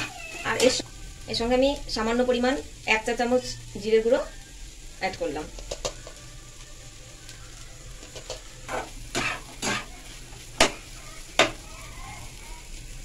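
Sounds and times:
low steady sizzle: 0:00.0 - 0:13.0
spatula scraping a frying pan: 0:08.1 - 0:11.6.

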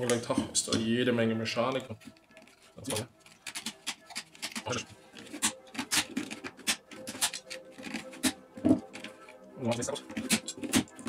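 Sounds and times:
clicks and knocks of small parts: 0:01.8 - 0:11.0.

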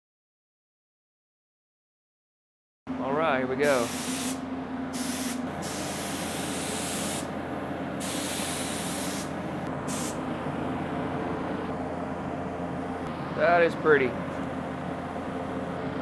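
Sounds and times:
exhaust fan hum: 0:02.9 - 0:16.0
spray gun hissing: 0:03.6 - 0:07.3, 0:08.0 - 0:10.2.

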